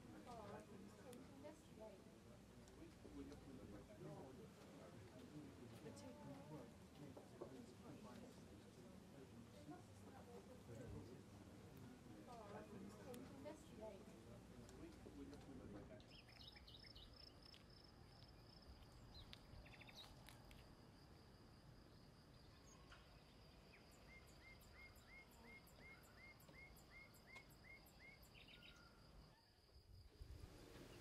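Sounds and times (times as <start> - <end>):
birds chirping: 15.9 - 17.8, 18.4 - 20.6.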